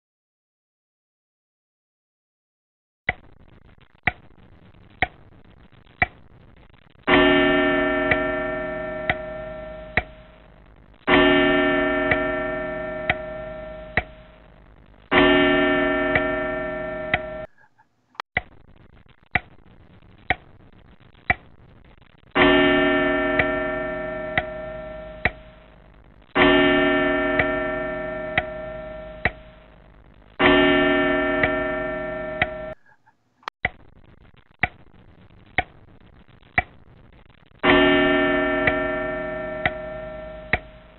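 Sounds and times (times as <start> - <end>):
clock ticking: 4.0 - 4.3, 5.0 - 5.3, 6.0 - 6.3, 7.1 - 10.5, 11.1 - 15.4, 16.0 - 17.7, 19.3 - 19.6, 20.2 - 20.6, 21.2 - 21.6, 23.3 - 25.7, 27.3 - 30.7, 32.3 - 33.0, 34.6 - 34.9, 35.5 - 35.9, 36.5 - 36.8, 39.5 - 40.9
ringing bell-like tone: 7.1 - 10.3, 11.1 - 14.4, 15.1 - 17.5, 22.4 - 25.6, 26.4 - 29.6, 30.4 - 32.8.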